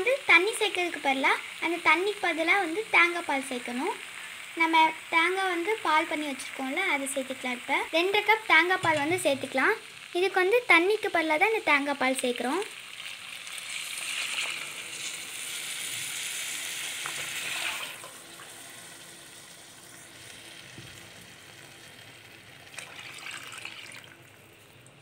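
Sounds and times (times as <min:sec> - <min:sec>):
food sizzling: 0:00.0 - 0:25.0
liquid pouring and splashing: 0:13.6 - 0:15.2, 0:17.3 - 0:18.6, 0:22.7 - 0:25.0.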